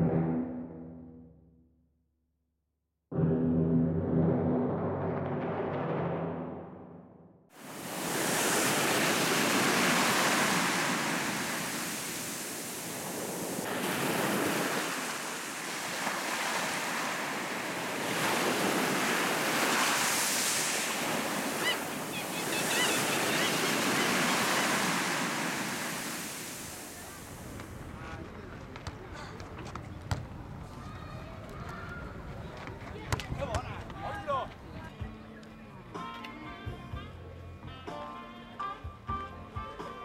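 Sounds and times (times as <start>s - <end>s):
small waves breaking on beach: 7.6s - 27.8s.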